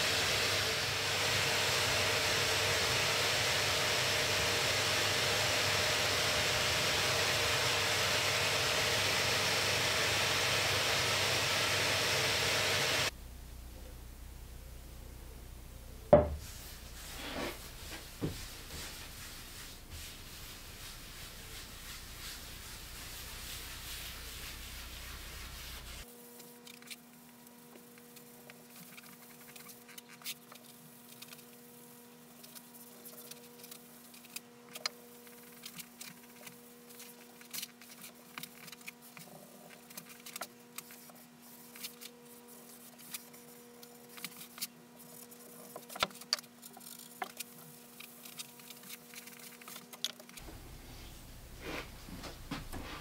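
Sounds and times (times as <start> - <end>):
electrical hum: 0.0 - 29.8
cloth rubbing on wood: 16.3 - 26.1.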